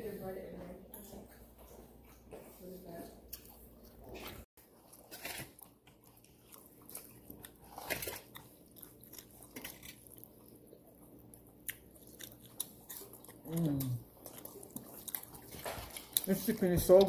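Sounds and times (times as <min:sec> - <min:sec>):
person crunching and chewing: 0:03.3 - 0:17.0.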